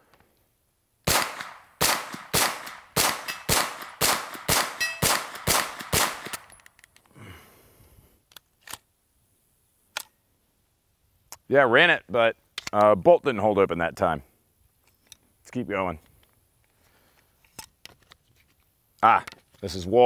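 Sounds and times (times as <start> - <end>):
carbine gunshots: 1.1 - 6.5.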